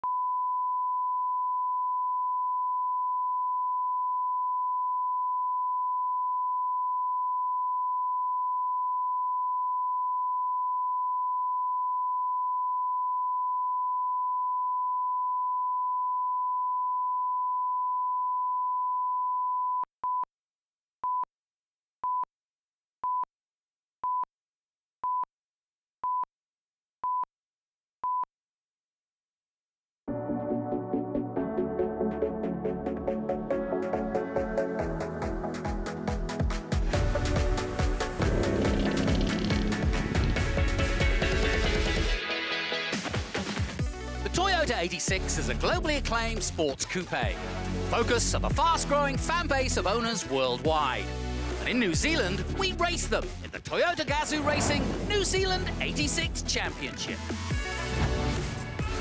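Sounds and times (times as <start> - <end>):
short beeps: 0.0 - 20.3.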